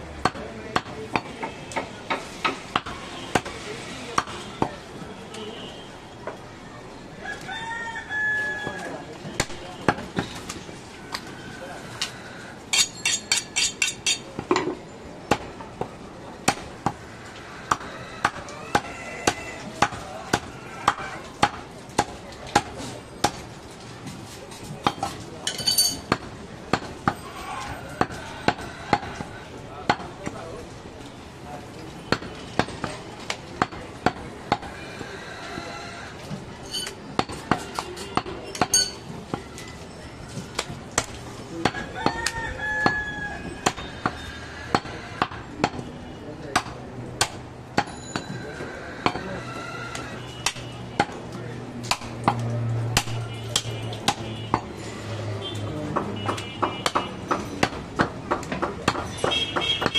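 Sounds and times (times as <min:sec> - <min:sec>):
knife chopping meat on wood: 0:16.5 - 0:17.0, 0:17.7 - 0:23.5, 0:51.9 - 0:54.7, 0:55.9 - 0:59.9
metallic clink: 0:25.5 - 0:26.0, 0:38.7 - 0:39.0.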